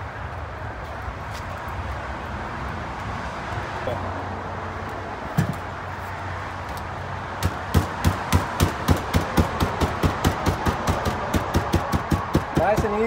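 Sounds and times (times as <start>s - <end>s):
hammer striking metal mesh: 7.4s - 13.0s.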